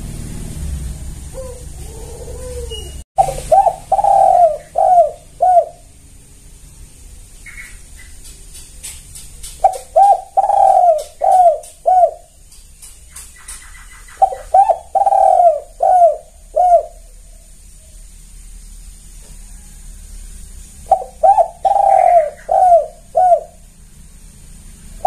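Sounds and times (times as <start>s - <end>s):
dove cooing: 1.3s - 6.0s, 9.6s - 12.4s, 13.4s - 17.5s, 20.8s - 23.7s.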